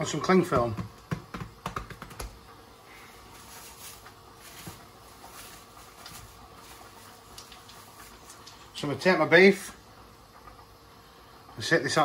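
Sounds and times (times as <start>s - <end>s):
plastic bag rustling: 3.0s - 8.7s.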